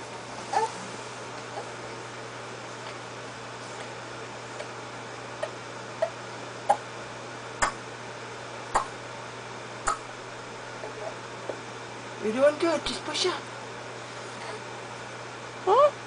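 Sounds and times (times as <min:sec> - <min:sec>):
steady low hum: 0:00.0 - 0:16.0
baby grunting: 0:00.5 - 0:00.8.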